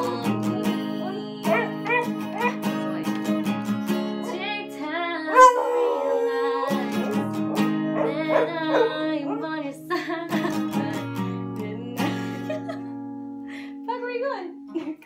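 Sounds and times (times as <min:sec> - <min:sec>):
acoustic guitar strumming: 0:00.0 - 0:14.7
dog howling: 0:01.0 - 0:02.6, 0:05.3 - 0:09.6.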